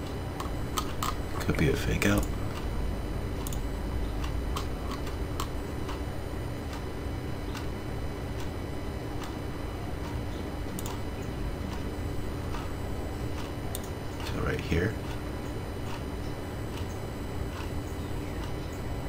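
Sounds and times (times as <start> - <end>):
steady low hum: 0.0 - 19.0
computer mouse clicks: 3.4 - 3.6, 10.0 - 11.0, 13.3 - 14.0.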